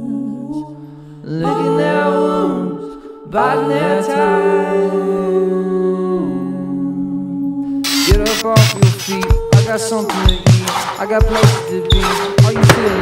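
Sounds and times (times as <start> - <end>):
song with sung vocal: 0.0 - 13.0.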